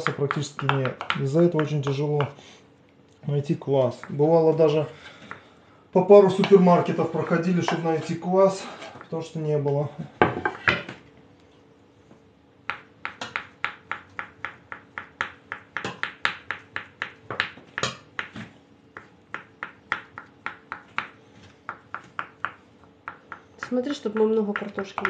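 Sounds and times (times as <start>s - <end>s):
knife chopping on wooden board: 0.0s - 2.4s, 12.6s - 25.0s.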